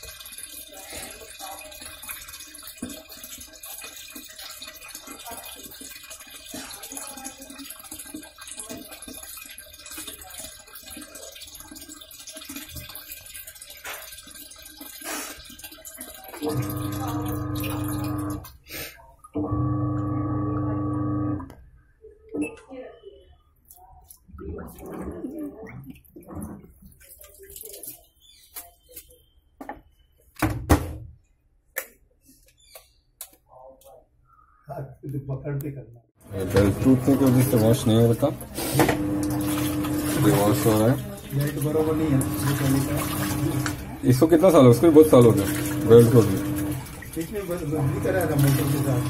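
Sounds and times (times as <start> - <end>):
water pouring into washing machine drum: 0.0 - 18.6, 19.2 - 21.5, 23.6 - 28.2, 36.2 - 49.0.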